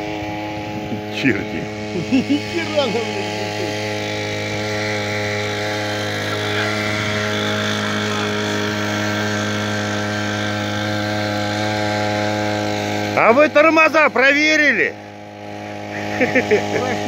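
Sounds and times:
brush-cutter engine running: 0:00.0 - 0:17.0.

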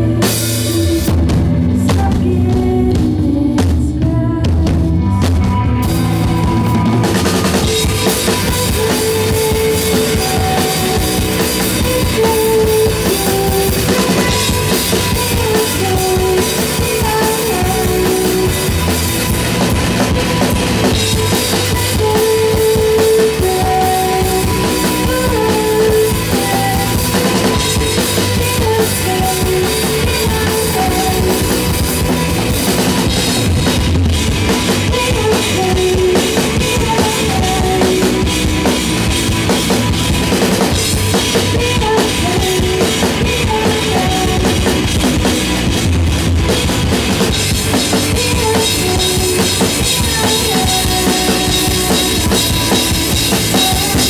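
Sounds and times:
drum kit: 0:00.0 - 0:54.0
rock band playing live: 0:00.0 - 0:54.0.

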